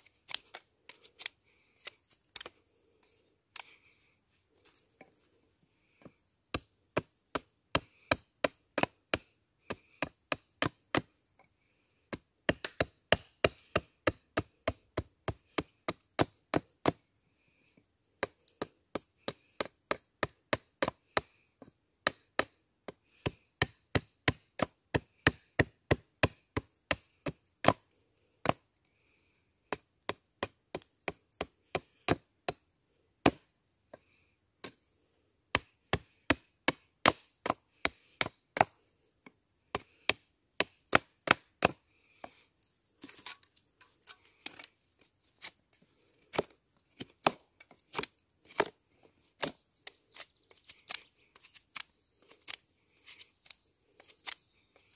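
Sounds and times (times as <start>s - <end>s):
blade chopping into wood: 46.3s - 48.8s.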